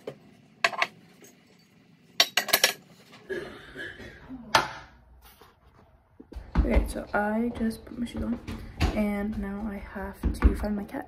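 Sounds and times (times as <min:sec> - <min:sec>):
dishes and cutlery clinking: 0:00.6 - 0:03.2.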